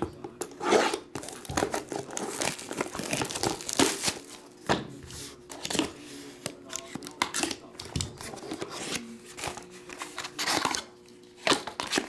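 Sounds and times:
plastic wrap crinkling and tearing: 1.1s - 4.5s.

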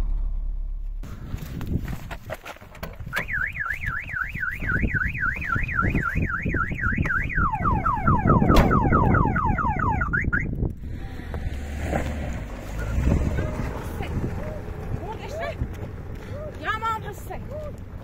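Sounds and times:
car alarm siren: 3.1s - 10.5s.

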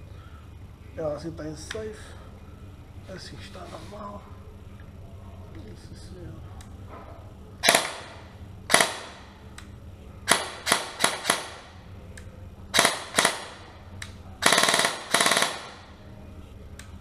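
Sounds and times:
airsoft gun shots: 7.6s - 9.2s, 10.3s - 11.7s, 12.8s - 13.6s, 14.4s - 15.8s.

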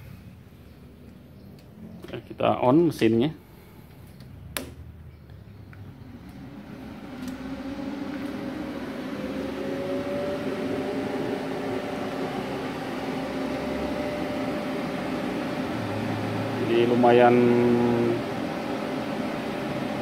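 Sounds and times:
welder cooling fan humming: 0.0s - 20.0s.

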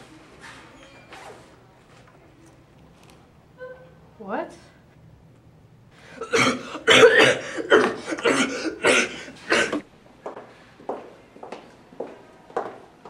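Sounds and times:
person coughing hard: 6.2s - 9.8s.

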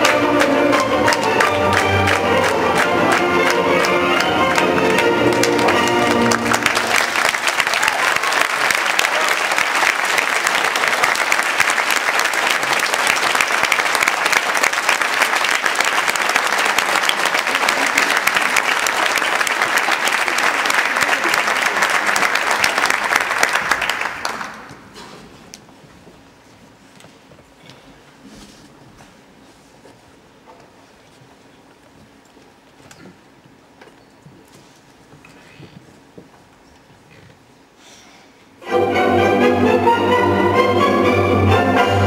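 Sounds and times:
music: 0.0s - 7.0s, 38.6s - 42.0s
audience applauding: 0.0s - 25.0s.

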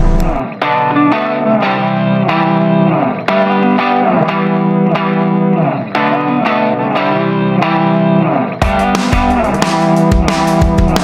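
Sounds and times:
chords over held bass: 0.0s - 0.5s.

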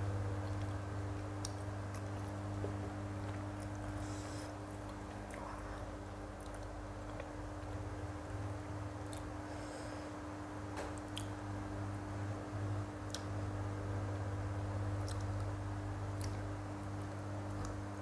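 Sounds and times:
steady low hum: 0.0s - 18.0s
person chewing: 1.4s - 7.8s.

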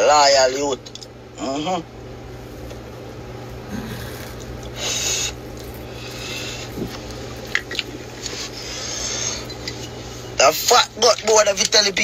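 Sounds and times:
steady low hum: 0.0s - 12.0s
man exhaling smoke: 3.7s - 7.2s.

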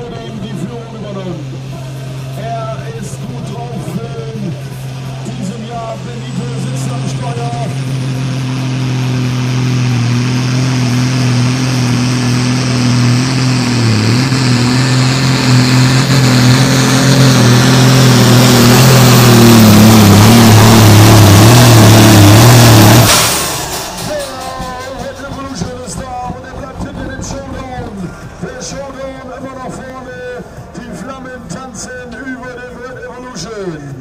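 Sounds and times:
diesel tractor engine at full throttle: 0.0s - 34.0s.

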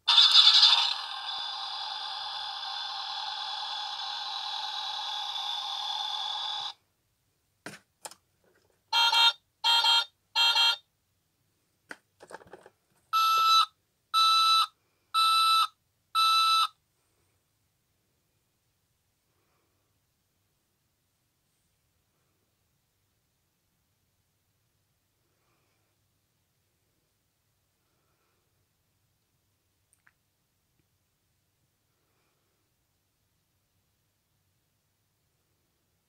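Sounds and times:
toy electronic noise: 0.0s - 6.8s.

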